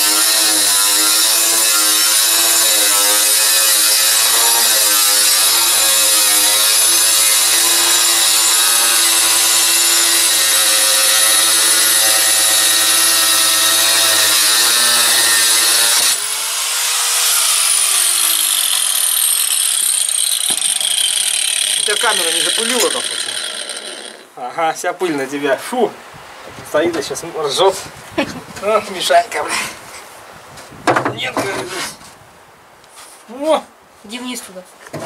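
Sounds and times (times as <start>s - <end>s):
power tool cutting sheet: 0.0s - 24.3s.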